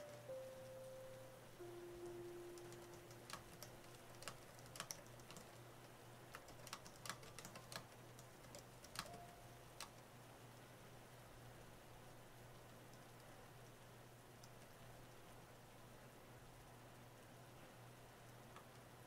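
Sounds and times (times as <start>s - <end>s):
keystroke clicks: 2.0s - 5.6s, 6.3s - 10.1s.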